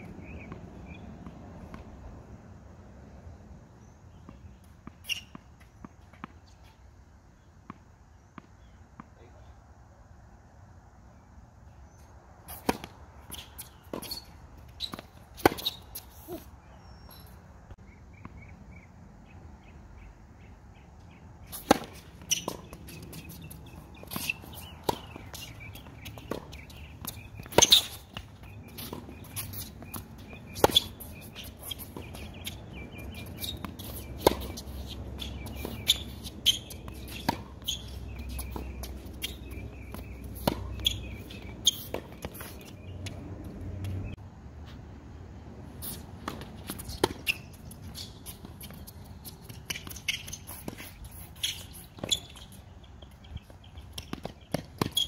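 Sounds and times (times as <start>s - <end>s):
tennis balls hit by racket: 12.5s - 17.0s, 21.1s - 44.2s, 45.8s - 55.0s
balls bouncing on hard court: 21.5s - 44.1s, 46.2s - 55.0s.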